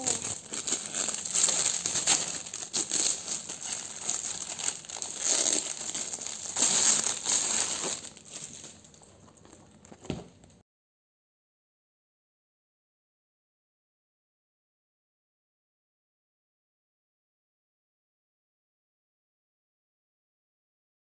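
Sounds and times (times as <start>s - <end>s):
plastic wrap crinkling: 0.0s - 10.6s.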